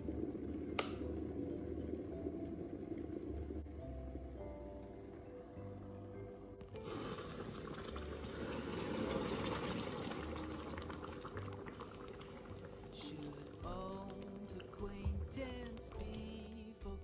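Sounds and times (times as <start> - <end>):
water pouring into pan: 6.7 - 14.9.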